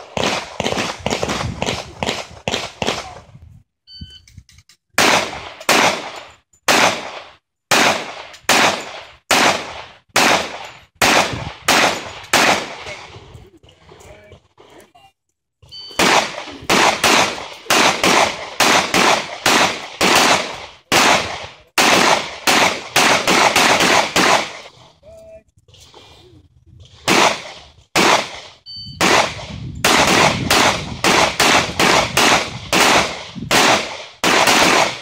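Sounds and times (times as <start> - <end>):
pistol shots: 0.0 - 3.1, 5.0 - 13.0, 15.9 - 24.7, 27.1 - 35.0
electronic timer beep: 3.9 - 4.3, 15.7 - 16.0, 28.6 - 29.0.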